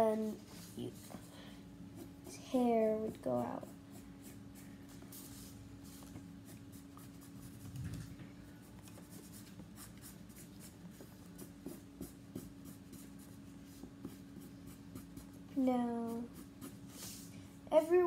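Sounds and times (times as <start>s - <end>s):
steady hum: 0.0s - 18.0s
pencil scratching on paper: 1.9s - 17.3s.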